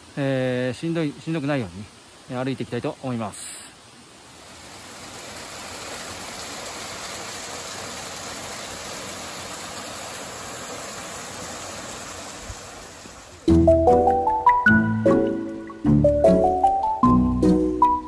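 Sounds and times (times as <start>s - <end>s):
waterfall splashing: 0.0s - 17.0s.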